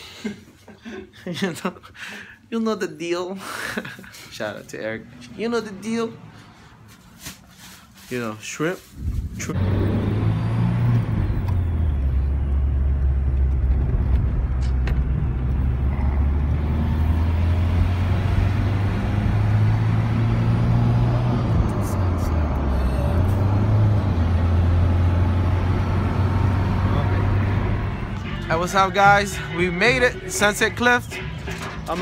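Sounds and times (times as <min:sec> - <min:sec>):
car engine and tyre drone: 0:09.3 - 0:32.0.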